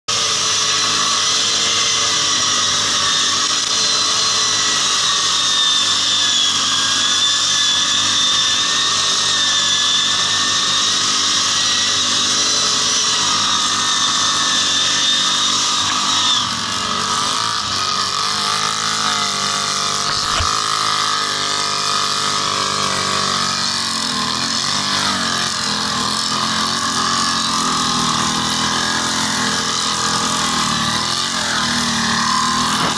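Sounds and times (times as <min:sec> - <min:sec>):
atv engine running: 0:16.9 - 0:21.0.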